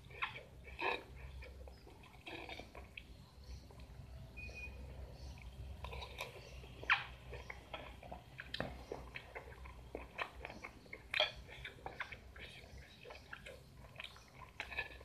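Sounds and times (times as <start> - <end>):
person chewing crunchy fruit: 0.0 - 15.0
mouth clicks: 5.3 - 15.0.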